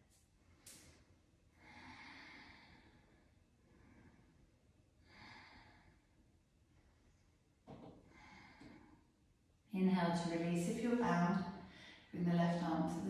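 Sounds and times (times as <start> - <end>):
person breathing deeply: 1.5 - 4.4.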